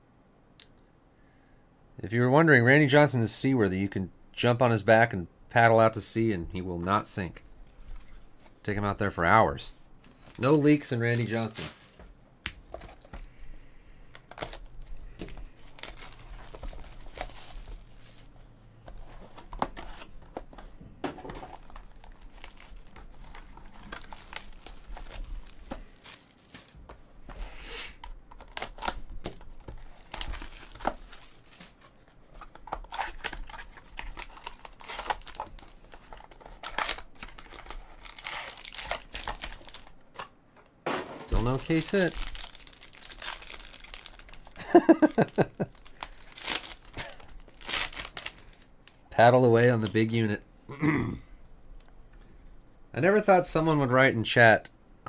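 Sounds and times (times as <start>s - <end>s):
foil packs crinkling: 10.1s - 12.0s, 12.7s - 18.4s, 21.3s - 40.3s, 41.2s - 50.0s
cardboard packaging tearing: 14.2s - 18.3s, 21.5s - 26.8s, 27.9s - 40.2s, 41.2s - 48.4s.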